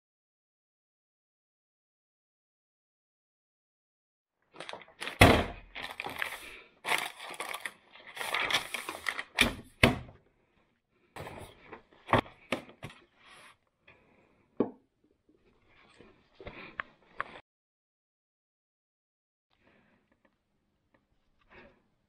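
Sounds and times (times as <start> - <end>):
paper and plastic crinkling: 4.5 - 9.8.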